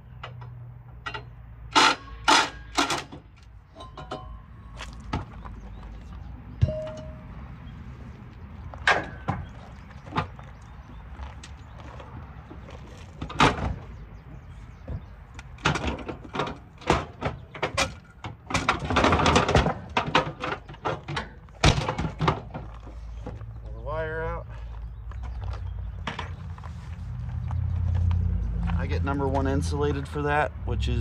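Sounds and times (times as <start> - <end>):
metal parts clanking and rattling: 1.0 - 4.4, 8.8 - 9.5, 15.5 - 23.4.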